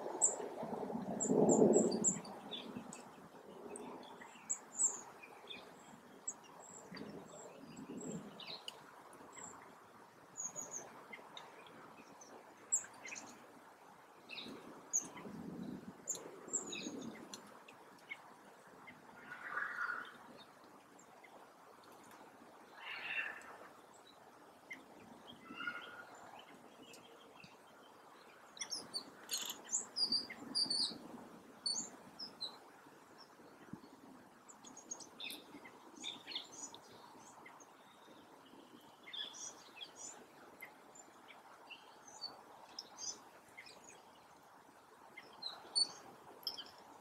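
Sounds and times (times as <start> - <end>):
faint background hiss: 0.0 - 47.0
small birds chirping: 22.7 - 31.0, 33.2 - 44.4, 45.1 - 47.0.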